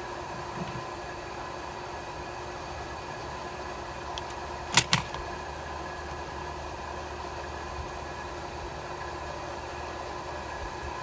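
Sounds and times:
steady mechanical hum: 0.0 - 11.0
sharp clicks of pliers: 4.2 - 5.2.

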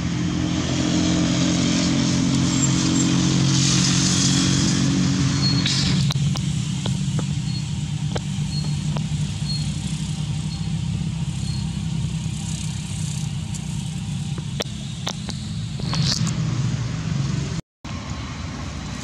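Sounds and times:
engine idling hum: 1.8 - 19.0
faint high chirps: 8.4 - 9.8.

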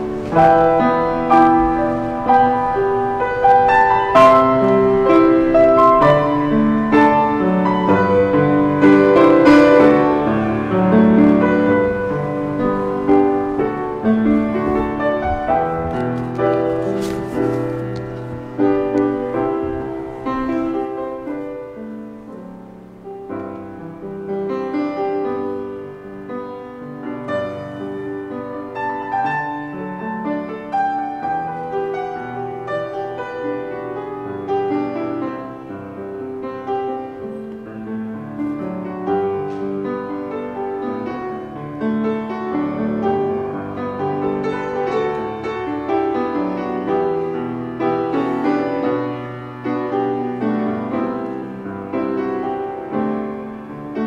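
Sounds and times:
piano playing: 0.0 - 54.0.

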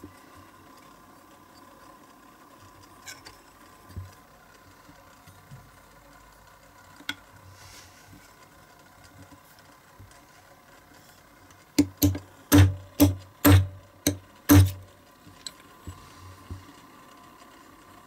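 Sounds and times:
hammer tapping steel punch: 11.8 - 14.9.

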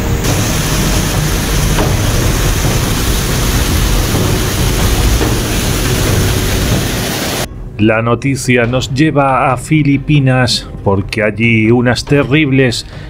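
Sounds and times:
floodwater rushing: 0.0 - 7.5.

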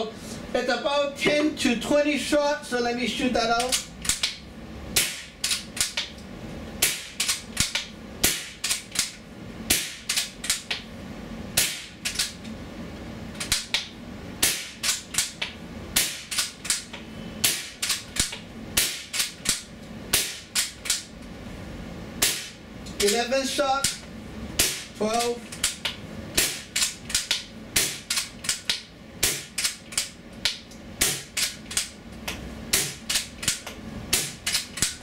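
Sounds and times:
air rifle firing pops: 5.0 - 5.3, 6.8 - 8.8, 9.7 - 10.2, 11.6 - 12.0, 13.5 - 15.0, 16.0 - 16.5, 17.4 - 20.7, 22.2 - 22.6, 24.6 - 24.9.

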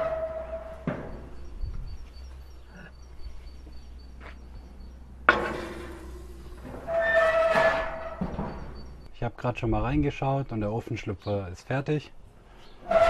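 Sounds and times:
dish clanking on grill: 5.3 - 8.8.

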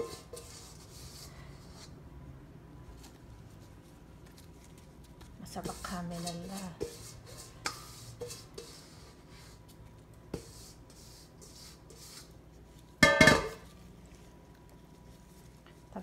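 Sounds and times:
handling and rubbing: 2.8 - 16.0
metal bowl clanging on counter: 13.0 - 13.7.

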